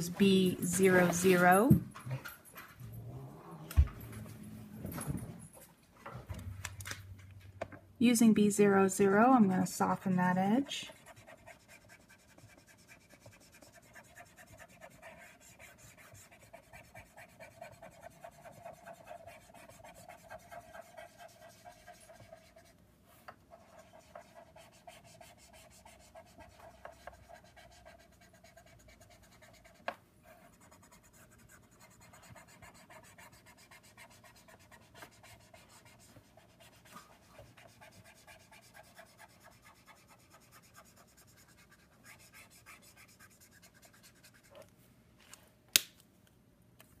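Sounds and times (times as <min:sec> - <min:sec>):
marker nib rubbing on paper: 0:00.0 - 0:01.7, 0:10.6 - 0:22.8, 0:23.5 - 0:44.6.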